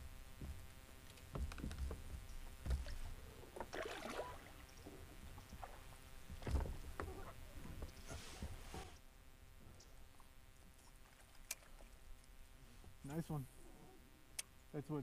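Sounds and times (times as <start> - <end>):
paddle blades splashing: 2.8 - 4.8.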